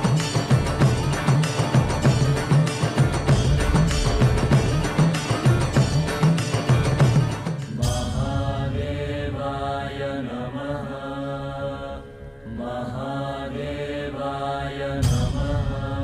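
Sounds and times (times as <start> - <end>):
steady low drone: 0.0 - 16.0
loud deep hit: 3.1 - 9.9
voices chanting a mantra: 7.7 - 16.0.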